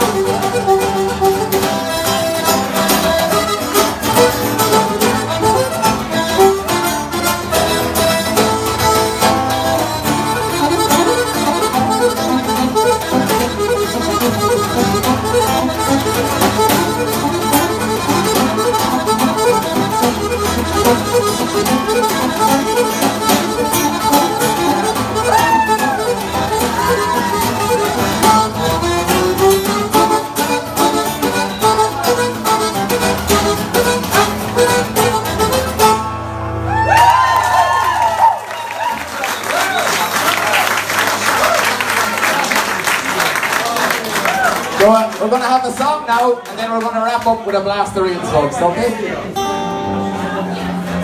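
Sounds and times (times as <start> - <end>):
button accordion dance tune: 0.0 - 36.7
acoustic guitar strumming: 0.0 - 38.1, 44.8 - 51.0.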